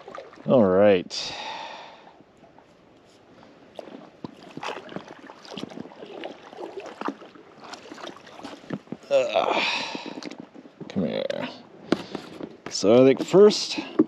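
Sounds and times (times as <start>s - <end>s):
paddle splashing in water: 0.0s - 0.5s, 3.7s - 10.6s.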